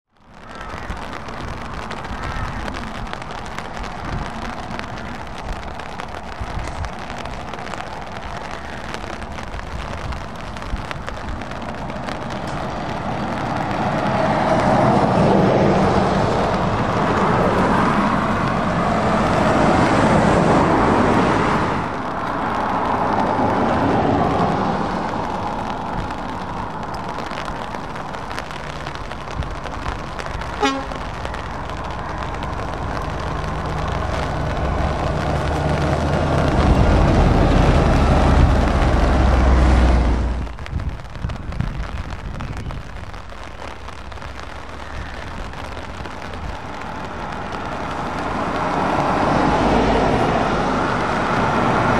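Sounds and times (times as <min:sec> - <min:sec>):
lorries driving on wet road: 0:00.1 - 0:51.9
van traffic: 0:00.1 - 0:51.9
deep engine rumble: 0:00.3 - 0:51.9
horn toot: 0:30.6 - 0:31.1.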